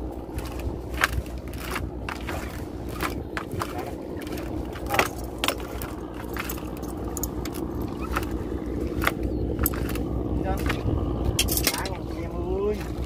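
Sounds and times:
boat engine running: 0:00.0 - 0:13.0
sharp clicks and rattles: 0:00.0 - 0:13.0.

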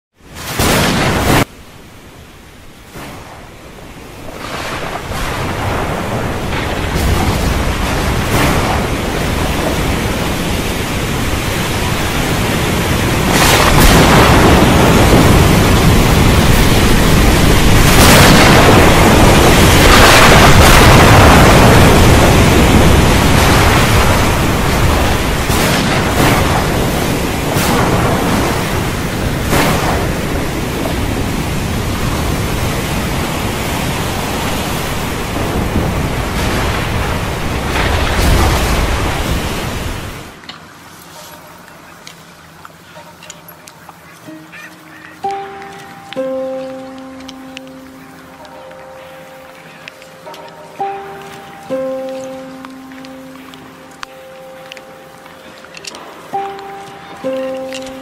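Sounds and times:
dense rushing rumble: 0:04.2 - 0:40.4
sharp cracks: 0:23.2 - 0:30.8.

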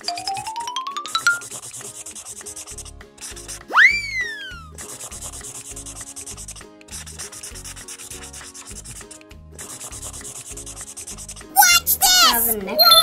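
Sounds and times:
crayon scribbling on paper: 0:01.3 - 0:03.7, 0:04.8 - 0:12.6
whistle-like sweeping tone: 0:03.7 - 0:04.8.

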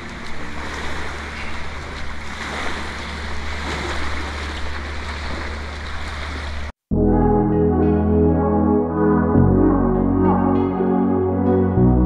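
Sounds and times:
small waves washing onto beach: 0:00.0 - 0:06.8
low hum: 0:00.0 - 0:12.0.

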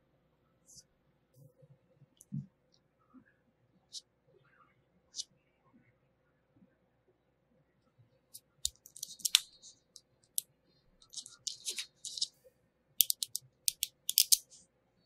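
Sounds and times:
magnetic metal balls clicking: 0:08.6 - 0:10.4, 0:11.0 - 0:12.3, 0:13.0 - 0:14.6.

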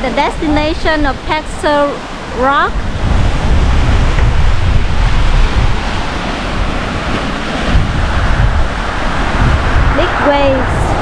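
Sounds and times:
waves washing onto shore: 0:00.0 - 0:11.0
wind buffeting microphone: 0:00.0 - 0:11.0.

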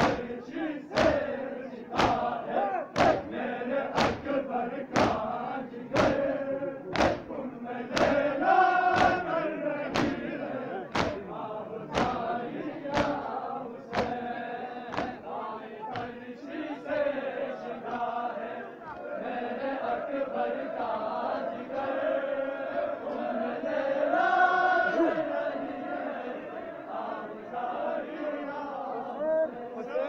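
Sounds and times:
palm slaps on chests: 0:00.0 - 0:00.3, 0:00.9 - 0:01.3, 0:01.9 - 0:03.3, 0:03.9 - 0:05.3, 0:05.9 - 0:06.3, 0:06.9 - 0:07.3, 0:07.9 - 0:08.3, 0:08.9 - 0:10.3, 0:10.9 - 0:11.3, 0:11.9 - 0:12.3, 0:12.9 - 0:14.3, 0:14.9 - 0:15.3, 0:15.9 - 0:16.2, 0:17.9 - 0:18.1
crowd of men chanting: 0:00.0 - 0:30.0.

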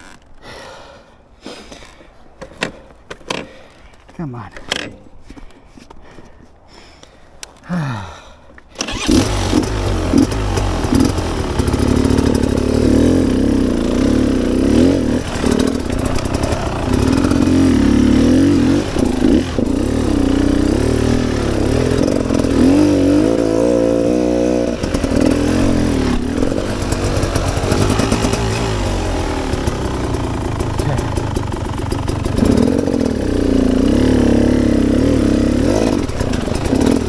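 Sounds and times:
dirt bike engine revving: 0:08.8 - 0:37.0.

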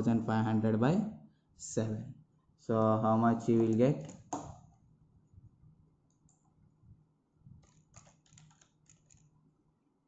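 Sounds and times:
calculator keys clicking: 0:07.6 - 0:09.2.

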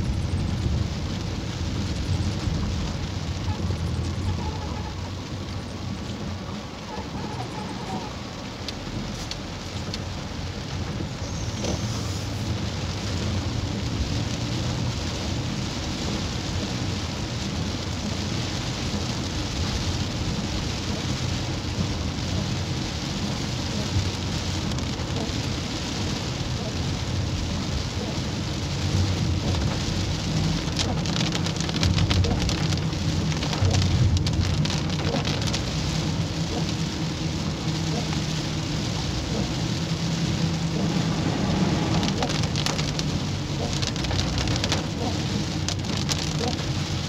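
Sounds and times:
car driving on wet road: 0:00.0 - 0:47.0
heavy rain on car roof: 0:00.0 - 0:47.0.

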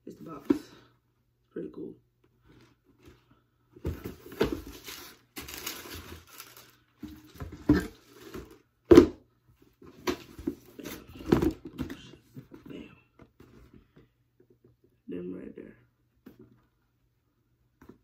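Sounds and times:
paper rustling and crinkling: 0:04.0 - 0:08.5.

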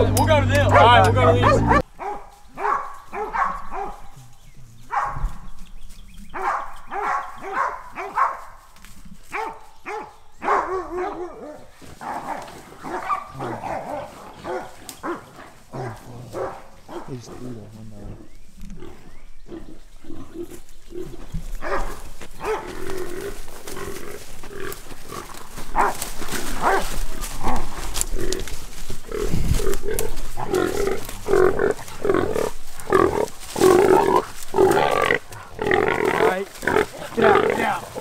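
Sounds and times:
hog grunting and squealing: 0:26.6 - 0:38.0.

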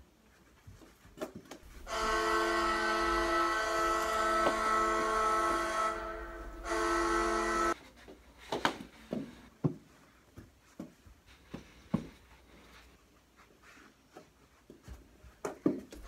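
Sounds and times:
hockey goal horn: 0:01.7 - 0:07.8.

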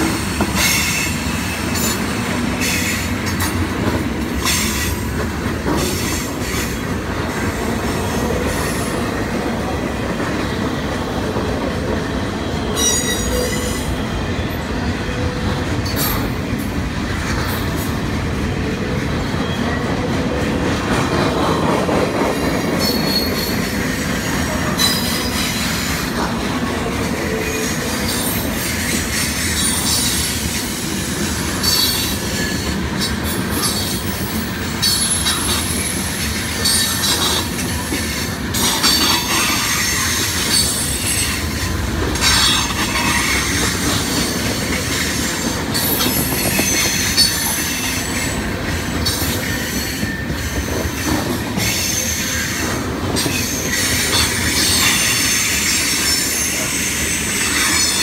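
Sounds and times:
clacking over rail joints: 0:00.0 - 0:09.0
train wheels rumbling on rail: 0:00.0 - 0:58.0.

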